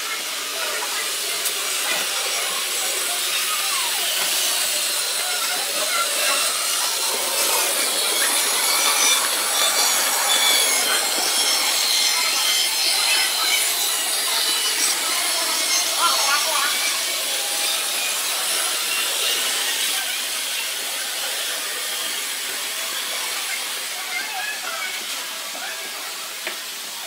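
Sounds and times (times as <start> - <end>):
wheels rolling on rails: 0.0 - 27.0
whirr of small electric motors: 0.0 - 27.0.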